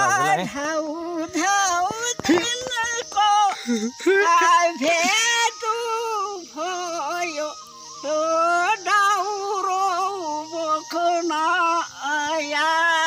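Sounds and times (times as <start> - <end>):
old man singing folk song: 0.0 - 0.9.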